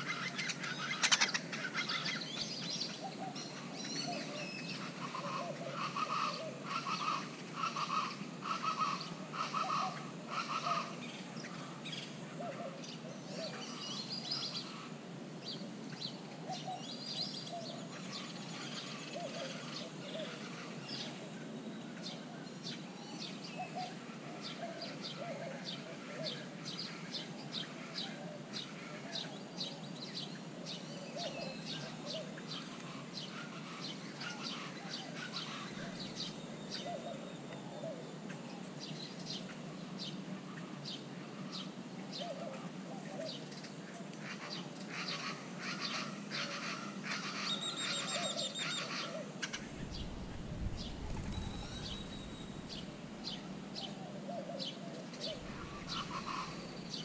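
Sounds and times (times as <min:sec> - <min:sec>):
birds calling: 0:00.0 - 0:57.0
low background noise: 0:00.0 - 0:57.0
high bird chirps: 0:49.5 - 0:53.6.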